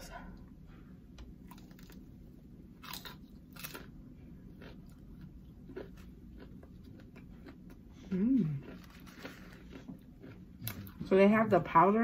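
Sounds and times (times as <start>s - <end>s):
chewing: 4.5s - 11.0s.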